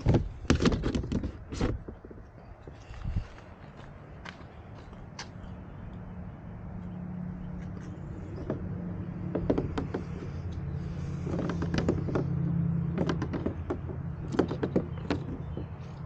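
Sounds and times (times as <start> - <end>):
sharp clicks and light knocks: 7.6 - 16.0.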